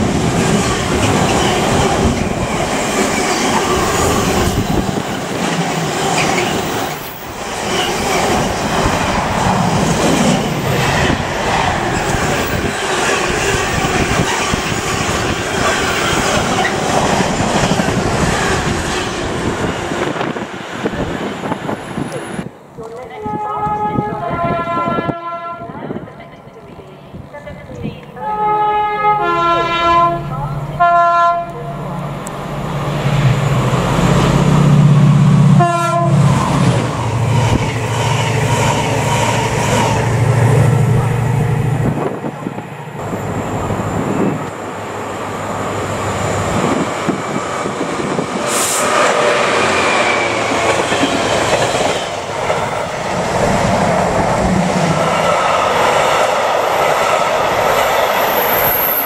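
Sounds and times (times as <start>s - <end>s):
two-tone locomotive horn: 23.2s - 26.0s, 28.2s - 31.7s, 35.5s - 36.3s.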